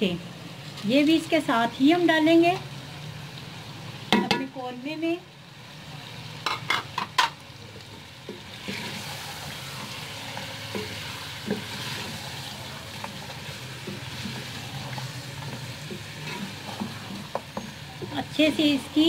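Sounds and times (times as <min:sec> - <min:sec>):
food sizzling in a pot: 0:00.0 - 0:19.0
wooden spatula stirring: 0:08.3 - 0:18.3.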